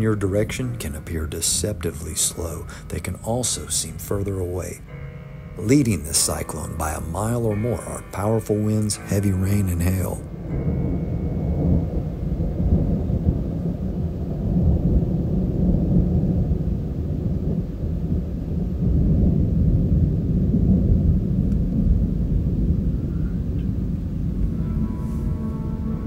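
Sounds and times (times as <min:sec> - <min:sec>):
rolling thunder: 0:05.6 - 0:26.0.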